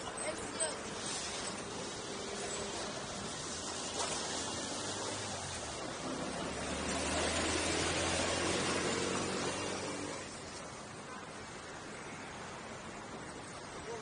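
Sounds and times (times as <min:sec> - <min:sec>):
passing vehicle engine hum: 0:00.0 - 0:10.7.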